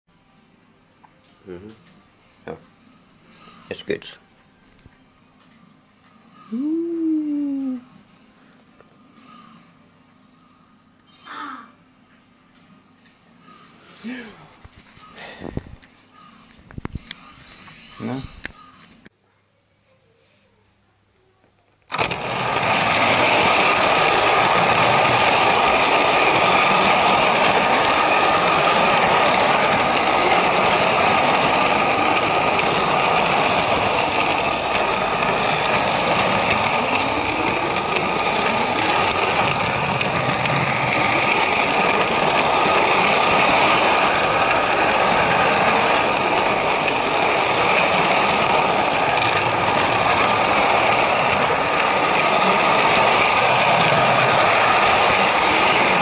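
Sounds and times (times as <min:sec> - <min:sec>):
model train motor whine: 0:21.9 - 0:56.0.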